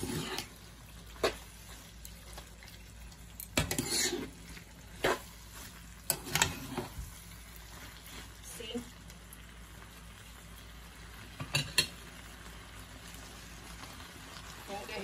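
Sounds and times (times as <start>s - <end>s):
noodles stirring: 0.0s - 8.4s
utensils clinking on a pan: 3.3s - 4.4s, 6.0s - 7.0s, 11.4s - 12.0s.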